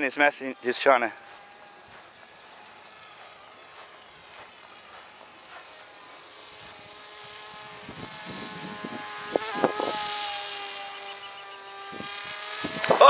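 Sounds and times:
model plane motor whining: 0:00.0 - 0:13.0
wind buffeting microphone: 0:06.5 - 0:10.1, 0:11.7 - 0:13.0.

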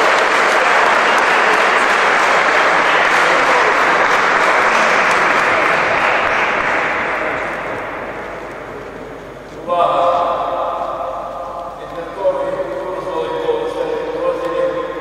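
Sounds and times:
crowd applauding: 0:00.0 - 0:08.9.

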